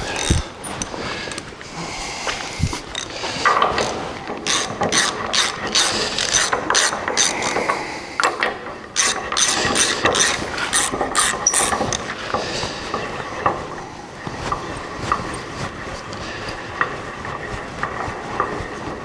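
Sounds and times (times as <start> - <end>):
ratchet wrench clicking: 0.0 - 1.4, 2.9 - 3.2, 3.8 - 7.7, 9.0 - 12.0.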